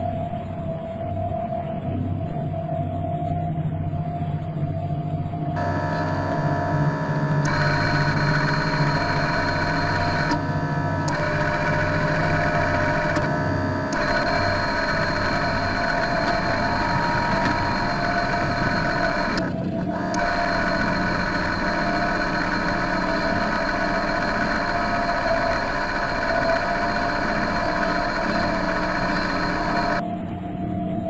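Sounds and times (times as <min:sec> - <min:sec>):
high-pitched motor whine: 0:00.0 - 0:31.0
electric motor hum: 0:05.6 - 0:30.0.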